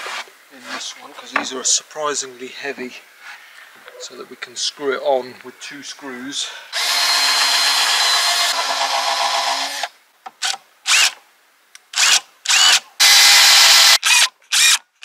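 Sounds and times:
cordless drill boring wood: 6.7s - 11.2s, 12.0s - 14.8s.

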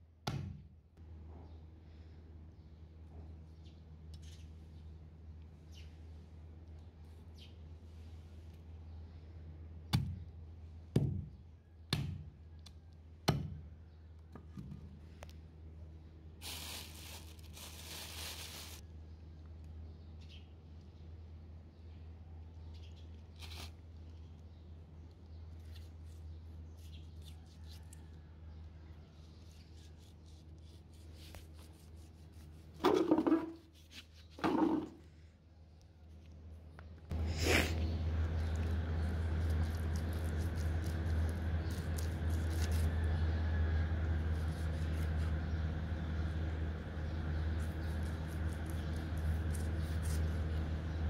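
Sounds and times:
knife scraping and cutting bone: 39.3s - 43.0s, 47.6s - 50.5s.

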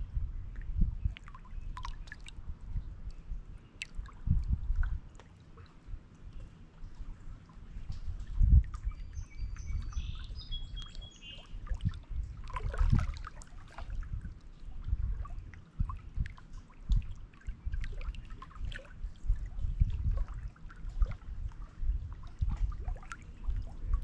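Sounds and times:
small bird singing: 8.8s - 11.6s
waves lapping against rocks: 11.8s - 14.2s.

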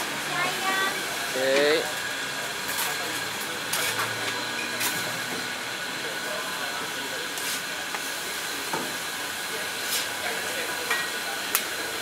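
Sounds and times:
bread sizzling on griddle: 0.0s - 12.0s.

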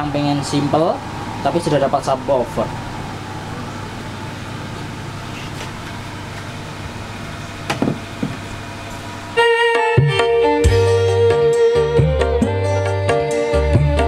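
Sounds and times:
background hum and hiss: 0.0s - 13.8s
music with drums: 9.4s - 14.0s.

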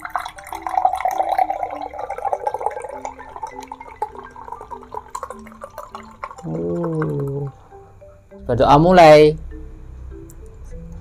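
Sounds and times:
person drinking: 0.0s - 7.6s.

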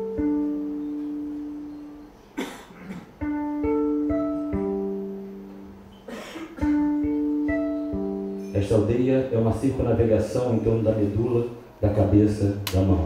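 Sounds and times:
plucked strings music: 0.0s - 2.4s, 3.0s - 9.9s.

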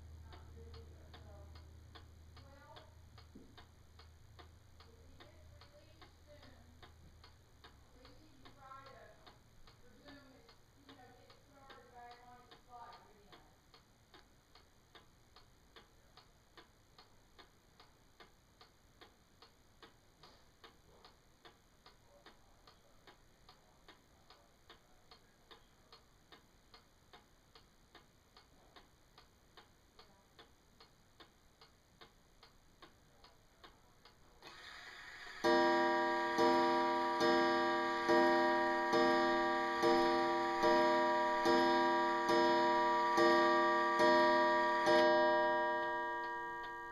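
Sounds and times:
clock ticking: 0.0s - 46.9s
clock mechanism whirring: 34.4s - 46.9s.

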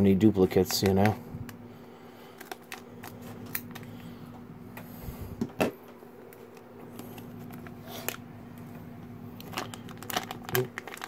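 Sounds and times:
scissors snipping foil packet: 9.4s - 11.0s.

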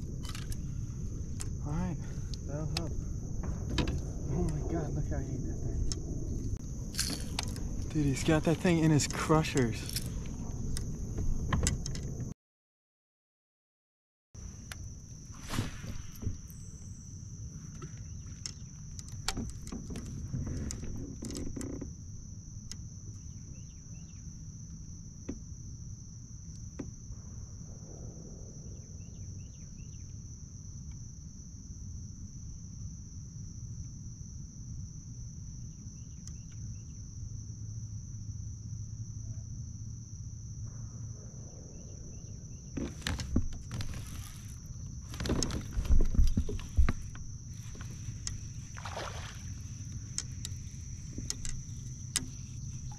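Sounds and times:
high-pitched insect drone: 0.0s - 12.0s, 21.1s - 52.9s
low rumble: 0.0s - 12.3s, 27.1s - 30.0s, 38.2s - 44.4s
knocks and rustles: 15.4s - 16.8s, 42.7s - 52.9s
faint chirps: 27.8s - 30.2s, 40.6s - 42.8s
light clicks: 49.9s - 52.9s.

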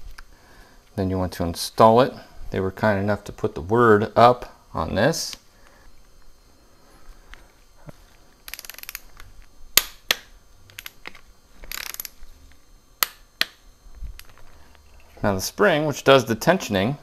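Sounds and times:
ratchet wrench clicking: 8.5s - 9.2s, 11.7s - 12.2s.

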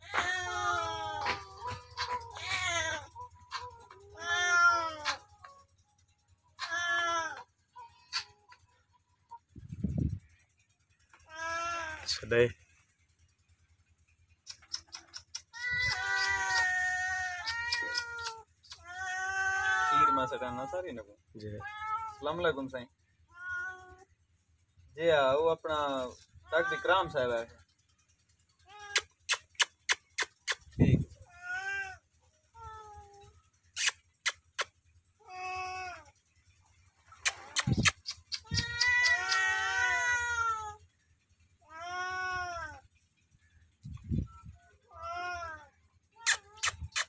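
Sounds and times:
cat meowing: 2.4s - 3.1s, 3.8s - 5.2s, 6.6s - 7.4s, 15.6s - 20.7s, 21.6s - 22.2s, 23.3s - 24.0s, 26.5s - 27.2s, 31.2s - 32.0s, 37.2s - 40.8s, 41.6s - 42.8s
faint clicks: 14.4s - 16.7s
sharp clicks: 14.4s - 16.7s, 28.9s - 30.7s, 37.2s - 39.4s.

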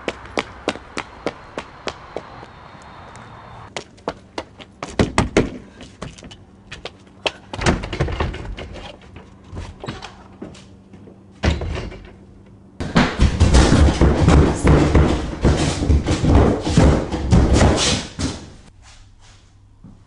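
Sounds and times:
sharp knocks and bangs: 12.8s - 18.6s
heavy thuds: 12.8s - 18.7s.

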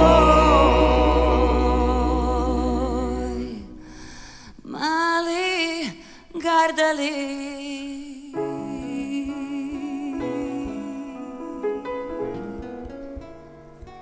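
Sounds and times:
violin: 0.0s - 3.8s
piano chords: 0.0s - 4.0s, 8.4s - 14.0s.

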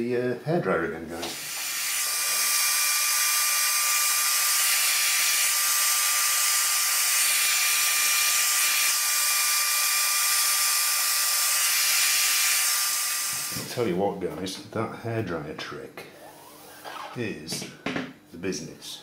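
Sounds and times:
hairdryer running: 1.2s - 13.7s.

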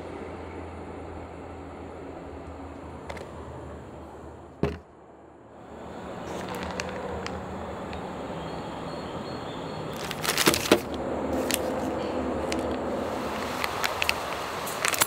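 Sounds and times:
plastic packaging crinkling: 6.3s - 7.0s, 9.9s - 15.0s.

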